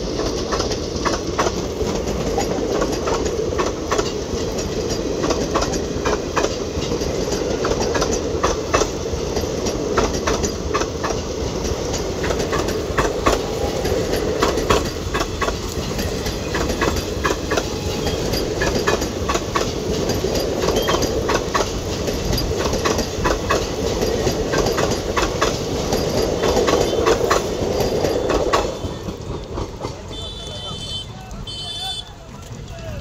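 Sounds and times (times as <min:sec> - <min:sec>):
train coaches rumbling past: 0:00.0 - 0:33.0
wheels clattering over track: 0:00.0 - 0:33.0.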